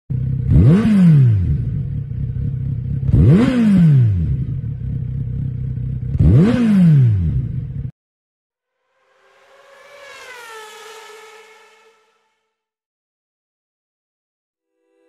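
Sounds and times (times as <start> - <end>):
motorcycle engine idling: 0.1 - 0.7, 1.5 - 3.3, 4.2 - 6.2
motorcycle engine revving: 0.1 - 7.9, 9.1 - 12.4.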